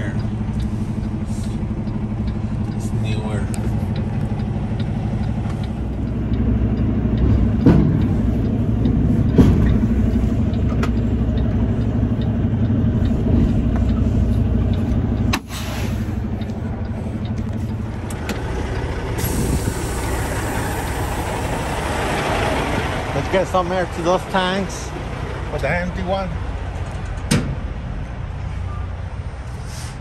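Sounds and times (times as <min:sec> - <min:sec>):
diesel truck engine idling: 0:00.0 - 0:29.6
sharp knocks: 0:07.2 - 0:08.2, 0:09.3 - 0:09.9.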